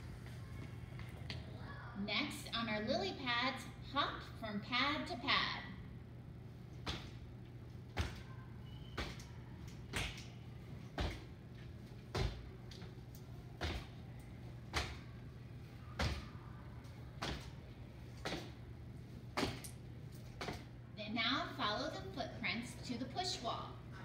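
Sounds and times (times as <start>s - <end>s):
feet thudding on tiled floor: 10.9s - 11.4s, 12.1s - 12.6s.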